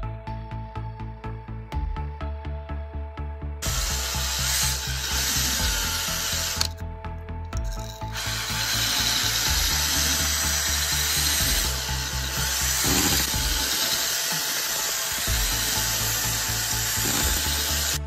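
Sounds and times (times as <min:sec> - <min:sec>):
background music with bass line: 0:00.0 - 0:18.0
wire brush grinding metal: 0:03.6 - 0:06.7, 0:07.7 - 0:18.0.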